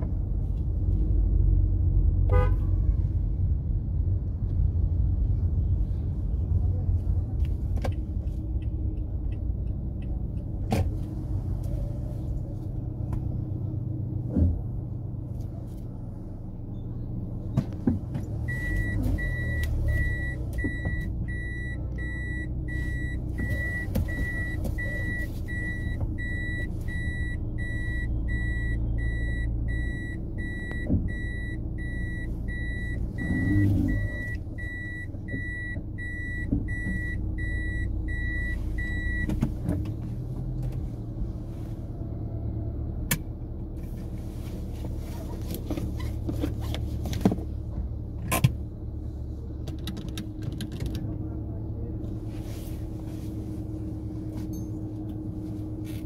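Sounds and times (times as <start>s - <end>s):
vehicle engine rumble: 0.0s - 56.0s.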